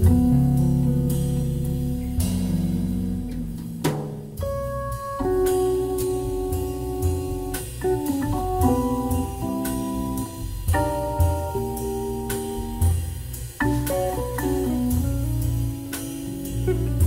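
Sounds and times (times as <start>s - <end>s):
drums and cymbal hits: 0.0s - 17.0s
low bass line: 0.0s - 17.0s
organ chords: 4.4s - 17.0s.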